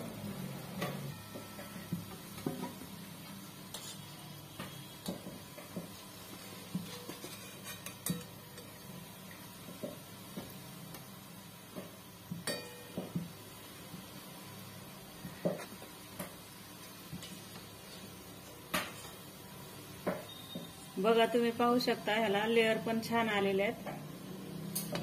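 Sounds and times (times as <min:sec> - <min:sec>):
metal spoon clinking on pan: 0:06.9 - 0:08.8, 0:12.4 - 0:13.0.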